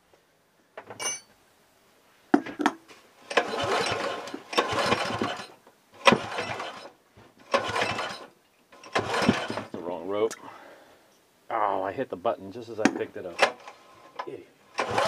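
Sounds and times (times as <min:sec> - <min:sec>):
light metallic clink: 0:01.0 - 0:01.3
engine cranked by recoil starter: 0:03.3 - 0:09.8, 0:13.4 - 0:15.0.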